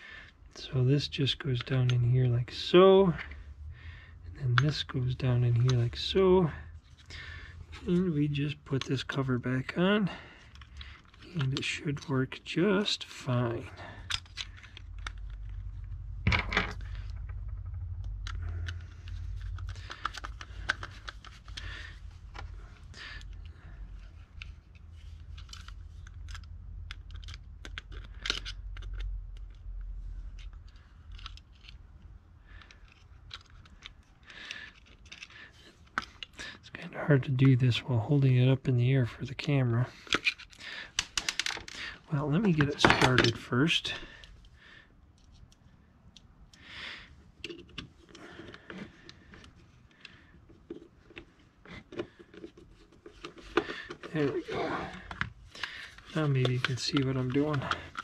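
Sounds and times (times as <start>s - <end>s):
tool parts clicking and scraping: 4.4s - 9.7s, 10.3s - 37.7s, 39.4s - 44.5s, 47.4s - 58.0s
low rumble: 14.0s - 24.3s.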